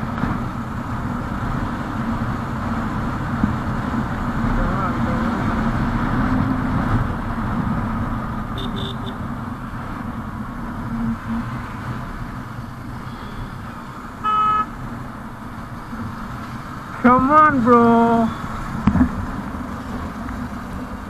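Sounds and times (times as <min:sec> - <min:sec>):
motorcycle engine: 0:00.0 - 0:17.4
horn honk: 0:08.5 - 0:09.3, 0:14.2 - 0:14.8.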